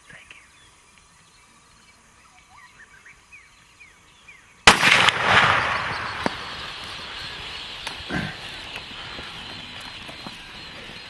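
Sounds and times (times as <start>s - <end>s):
faint bird chirps: 0.0s - 4.6s, 5.4s - 11.0s
handgun shot: 4.7s - 6.4s
herd rushing away: 5.6s - 11.0s.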